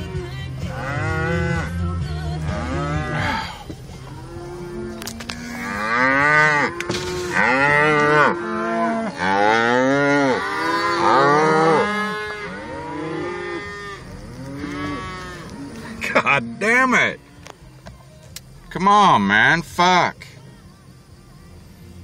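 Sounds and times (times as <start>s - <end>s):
cattle mooing and bellowing: 0.0s - 17.5s.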